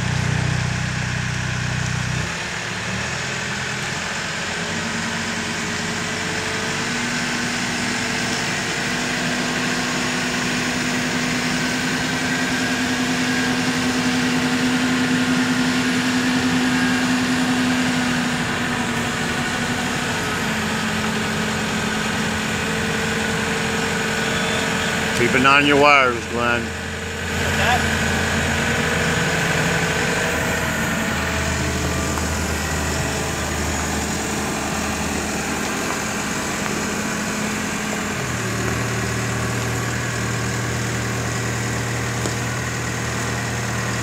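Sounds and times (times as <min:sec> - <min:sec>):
telehandler engine running: 0:00.0 - 0:44.0.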